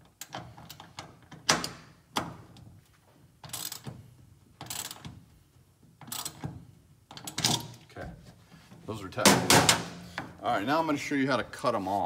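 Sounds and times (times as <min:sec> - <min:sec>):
ratchet wrench clicking: 0:03.4 - 0:03.9, 0:04.6 - 0:05.1, 0:06.0 - 0:06.4.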